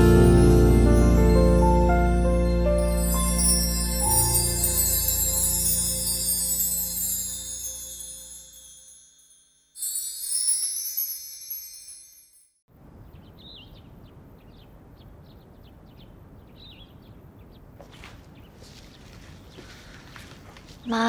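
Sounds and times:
shimmering chime sting: 0.0s - 12.6s
birds chirping: 12.8s - 21.0s.

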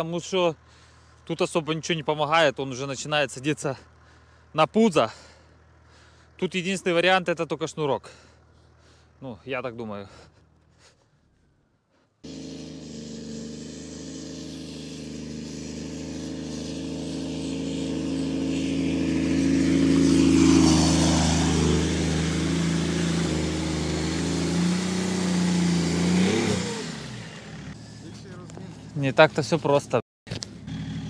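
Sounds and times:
diesel car engine running: 0.0s - 31.0s.

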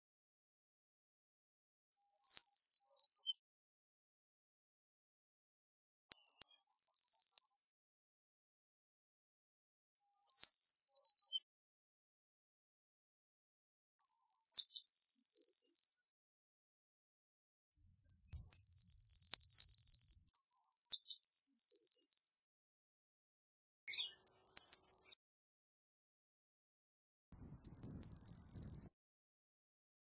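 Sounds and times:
bird singing with trills: 2.0s - 3.4s, 10.0s - 11.4s, 14.0s - 16.1s, 17.8s - 22.4s, 23.9s - 25.2s, 27.4s - 28.9s.

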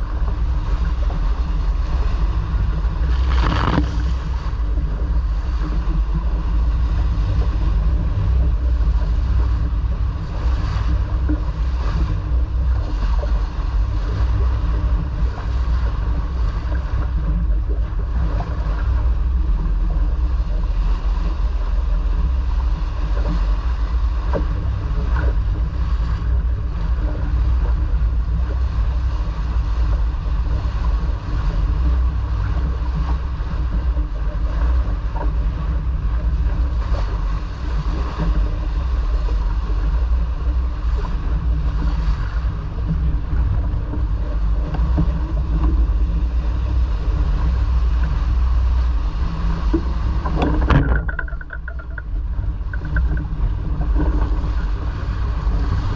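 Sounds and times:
water rushing along hull: 0.0s - 55.9s
wind buffeting microphone: 0.0s - 55.9s
faint knocks: 49.7s - 53.3s.

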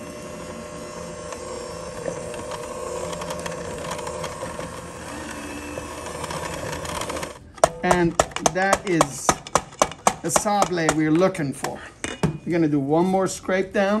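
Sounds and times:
electric hand mixer running: 0.0s - 11.0s.

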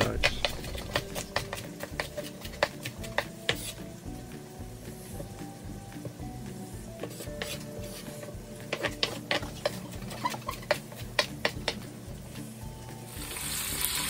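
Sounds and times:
knife chopping on wooden board: 0.0s - 3.8s, 7.0s - 7.7s, 8.6s - 11.8s
meat sizzling in a pan: 0.0s - 14.0s.

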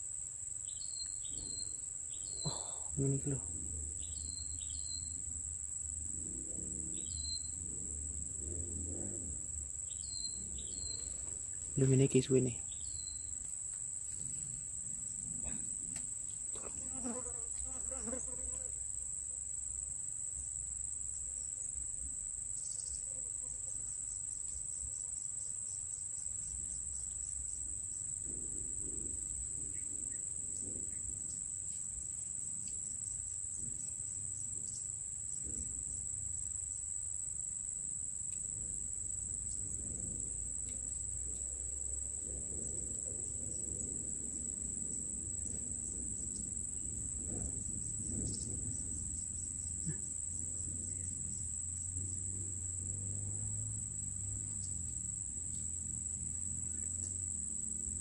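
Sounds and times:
insects trilling: 0.0s - 58.0s
low rumble: 3.0s - 12.8s.

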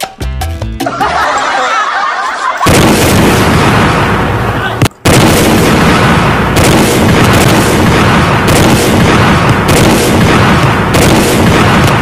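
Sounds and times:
explosion sound effects: 2.5s - 12.0s.

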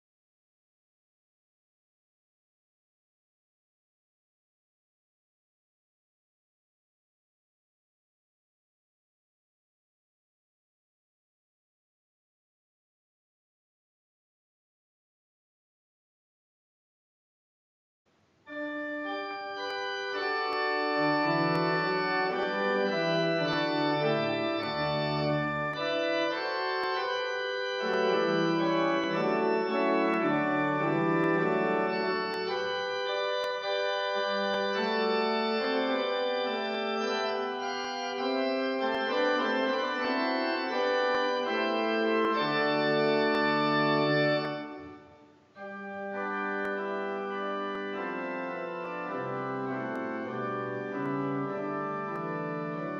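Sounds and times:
church organ chords: 18.5s - 52.9s.

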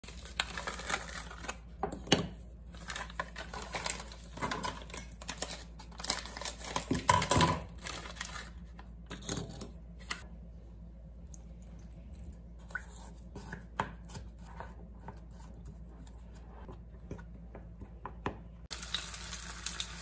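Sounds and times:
food packets crinkling: 0.0s - 1.7s, 2.7s - 8.8s.

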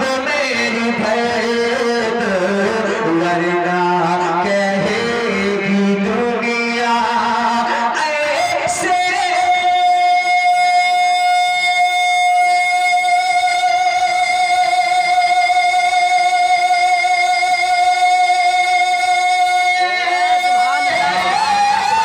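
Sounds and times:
man singing a long note: 0.0s - 22.0s.

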